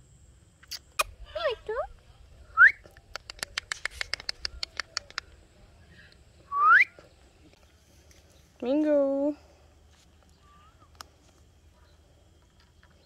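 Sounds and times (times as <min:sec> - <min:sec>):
parakeet sharp clicks: 0:02.9 - 0:05.4.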